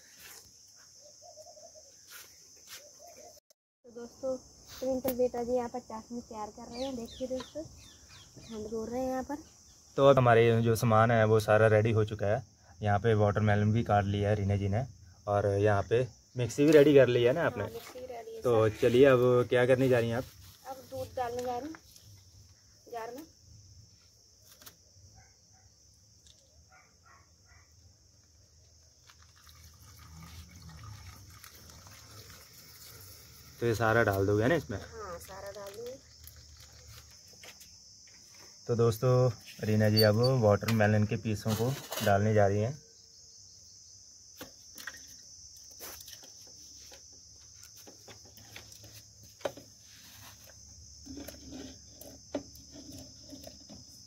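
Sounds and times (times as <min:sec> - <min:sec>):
crickets chirring: 0:00.0 - 0:54.0
milk pouring into blender jar: 0:29.1 - 0:33.0.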